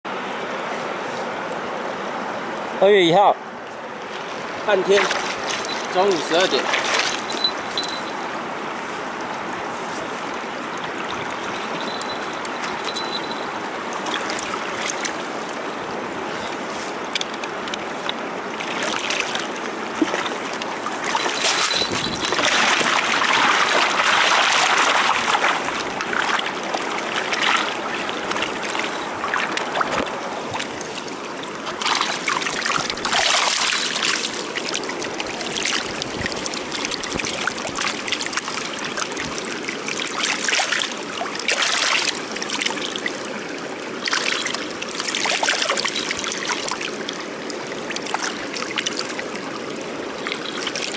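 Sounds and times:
river water flowing: 0:00.1 - 0:50.9
net splashing in water: 0:05.0 - 0:07.7, 0:18.6 - 0:43.2, 0:44.0 - 0:49.4.

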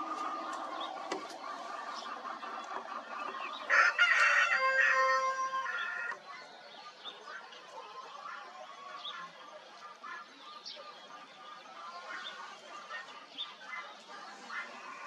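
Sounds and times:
small birds chirping: 0:00.0 - 0:15.0
rooster crowing: 0:03.7 - 0:06.2.

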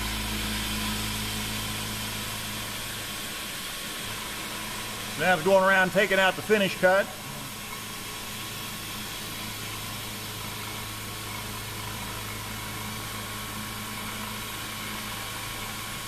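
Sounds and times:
low hum: 0:00.0 - 0:03.2
milling spindle whir and hiss: 0:00.0 - 0:16.0.

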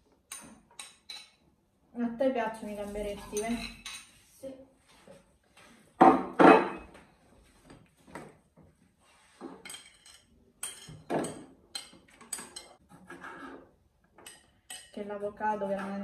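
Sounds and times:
plates and cutlery clinking: 0:02.9 - 0:04.2, 0:06.0 - 0:07.0, 0:09.4 - 0:15.0
loud dish clatter: 0:06.0 - 0:06.9.

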